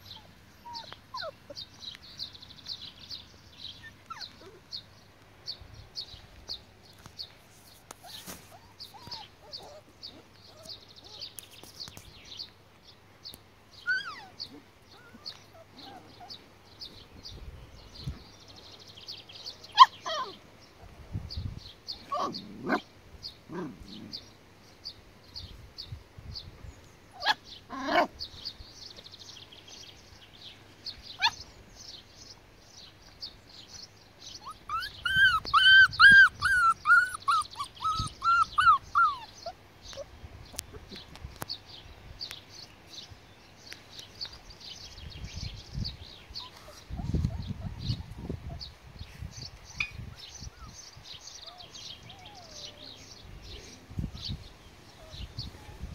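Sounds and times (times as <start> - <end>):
puppies whimpering and yipping: 0.0 - 1.7, 3.8 - 4.6, 8.0 - 11.3, 13.8 - 16.4, 19.8 - 20.4, 27.2 - 28.1, 31.2 - 31.4, 34.3 - 41.0, 46.3 - 48.8, 49.7 - 53.1.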